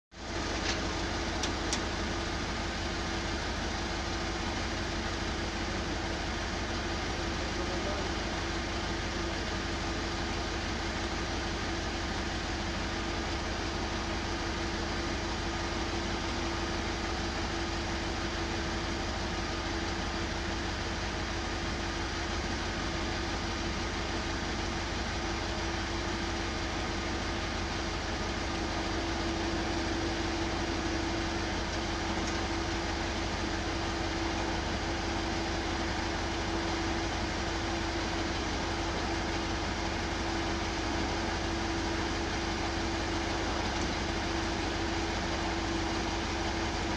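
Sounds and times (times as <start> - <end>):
constant whine: 0.1 - 46.9
engine drone: 0.2 - 46.9.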